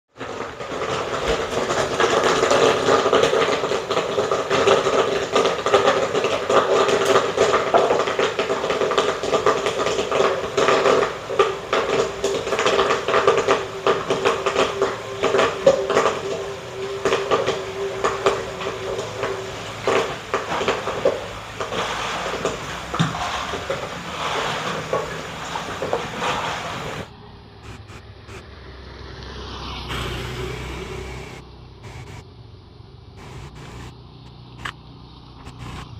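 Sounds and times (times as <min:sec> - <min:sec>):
popcorn popping: 0:00.1 - 0:28.5
kernels clattering against pot: 0:00.2 - 0:27.1
stirrer motor humming: 0:00.2 - 0:28.6.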